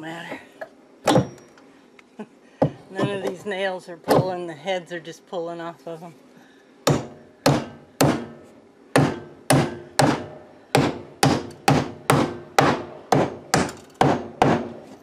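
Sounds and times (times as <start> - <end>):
hammer striking wood: 1.0 - 1.4, 6.8 - 14.8.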